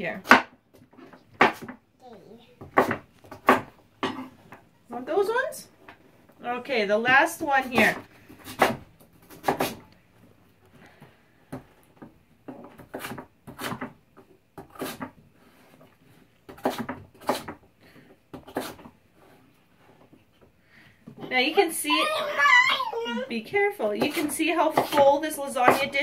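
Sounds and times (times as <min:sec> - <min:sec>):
knife chopping on board: 0:01.4 - 0:01.8, 0:02.6 - 0:03.7, 0:07.7 - 0:09.8, 0:12.8 - 0:14.0, 0:14.6 - 0:15.1, 0:16.5 - 0:17.6, 0:24.0 - 0:26.0.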